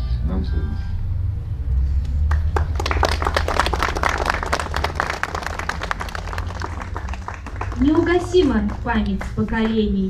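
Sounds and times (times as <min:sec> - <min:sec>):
crowd applauding: 0:02.2 - 0:10.0.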